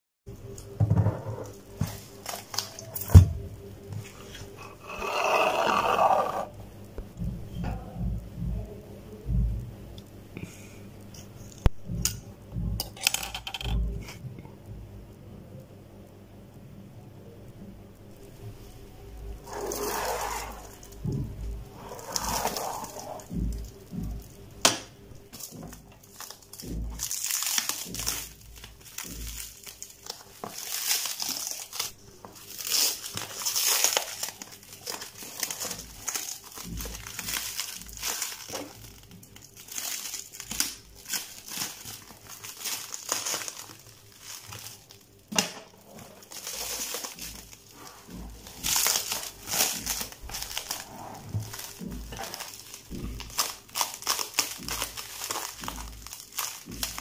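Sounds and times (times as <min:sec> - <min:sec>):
plastic shrink wrap crinkling: 0:01.4 - 0:03.4, 0:04.0 - 0:06.5, 0:18.3 - 0:24.5, 0:25.2 - 0:57.0.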